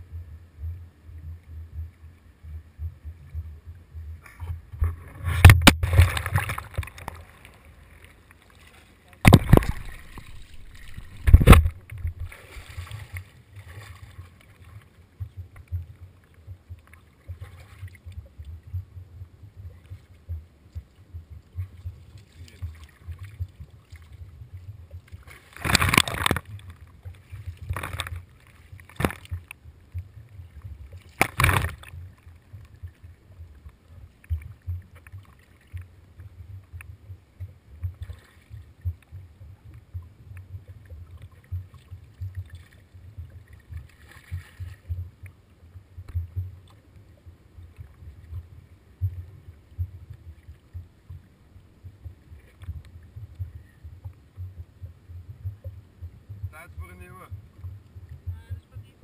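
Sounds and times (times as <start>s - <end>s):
low rumble: 0.0s - 8.0s, 9.3s - 25.3s
water splashing against camera: 0.0s - 59.0s.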